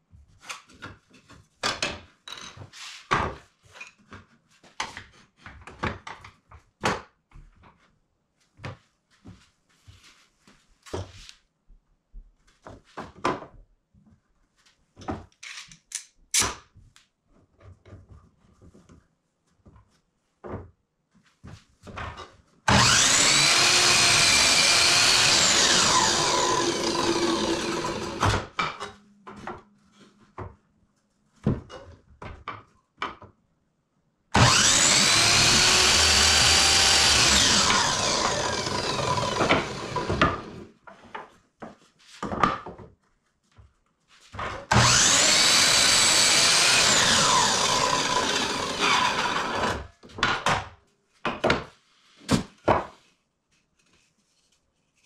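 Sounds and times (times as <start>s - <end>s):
miter saw cutting wood: 22.7s - 28.5s, 34.4s - 40.7s, 44.7s - 49.9s.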